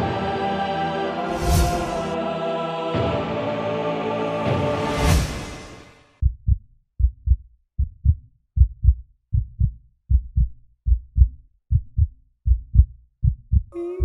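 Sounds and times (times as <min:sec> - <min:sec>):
music swell: 0:00.0 - 0:06.0
heartbeat thumps: 0:06.2 - 0:13.8.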